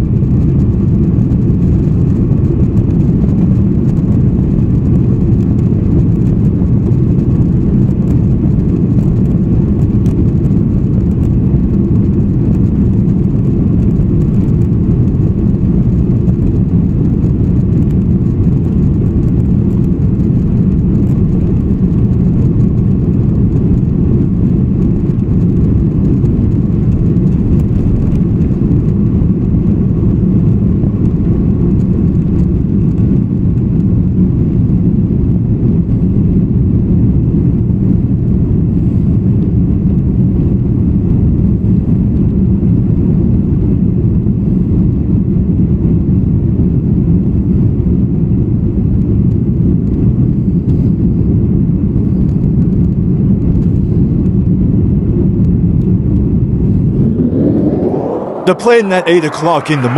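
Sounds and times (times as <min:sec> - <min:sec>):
aircraft engines rumbling: 0:50.3 - 0:59.9
faint steady whine: 0:56.4 - 0:59.9.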